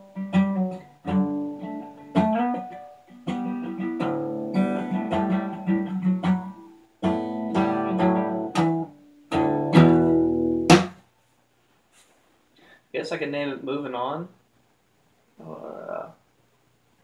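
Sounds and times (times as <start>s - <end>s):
acoustic guitar strummed and picked: 0.0s - 11.0s.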